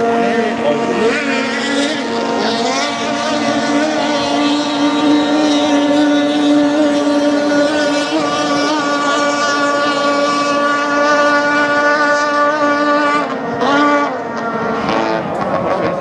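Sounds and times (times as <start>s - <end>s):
boat engine high-pitched note: 0.0s - 16.0s.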